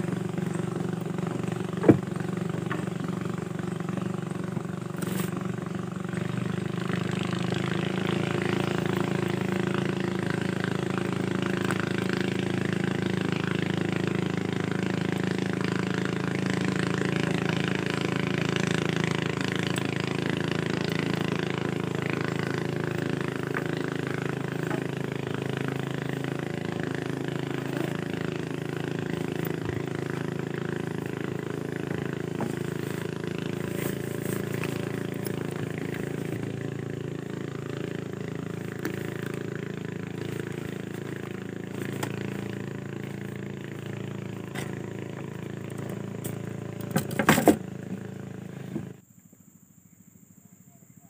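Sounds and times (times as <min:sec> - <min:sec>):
boat engine running: 0:00.0 - 0:49.1.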